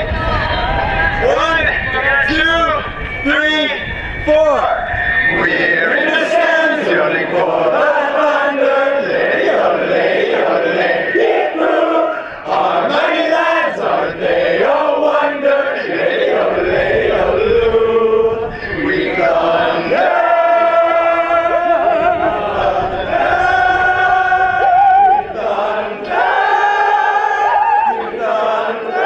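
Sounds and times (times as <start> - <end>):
crowd yodeling: 0.0 - 29.0
man yodeling through microphone: 16.3 - 25.8, 26.8 - 28.1.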